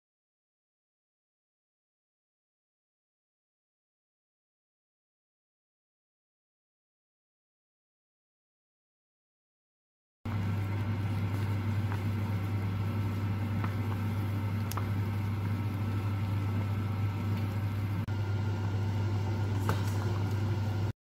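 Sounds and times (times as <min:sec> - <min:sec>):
pot boiling on a hob: 0:10.3 - 0:21.0.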